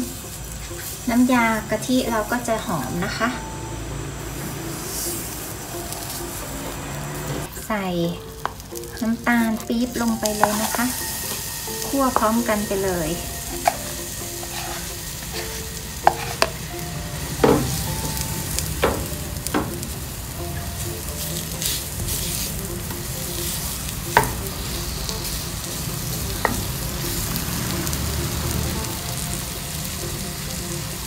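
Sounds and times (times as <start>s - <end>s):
spatula scraping wok: 0.0s - 3.4s, 4.1s - 7.6s, 8.3s - 31.0s
low sizzle: 0.0s - 31.0s
spatula knocking on pan: 10.3s - 10.8s, 16.0s - 16.7s, 17.3s - 20.0s, 24.1s - 24.5s.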